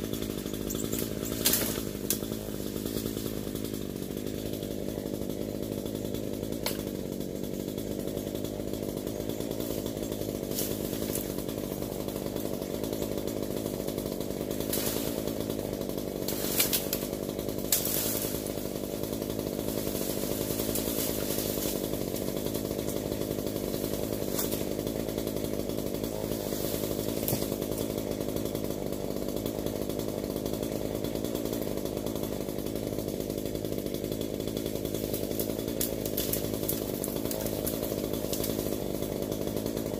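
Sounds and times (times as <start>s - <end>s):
chainsaw running: 0.0s - 39.9s.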